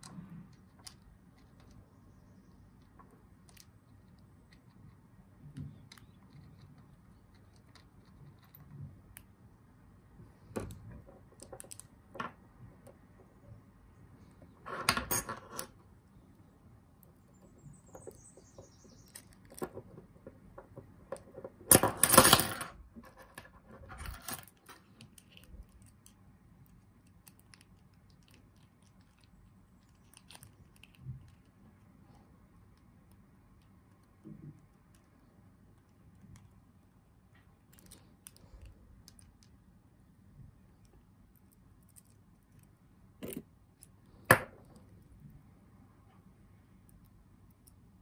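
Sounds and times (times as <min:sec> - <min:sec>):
small metal parts clicking: 0:11.3 - 0:12.0.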